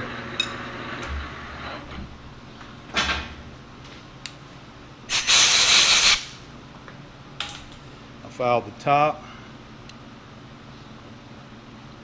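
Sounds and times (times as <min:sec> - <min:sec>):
compressed air blow gun blasting: 0:05.1 - 0:06.4.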